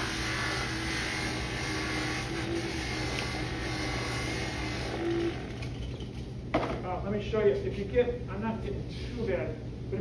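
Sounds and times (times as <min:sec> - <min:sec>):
buffing motor humming: 0:00.0 - 0:06.2.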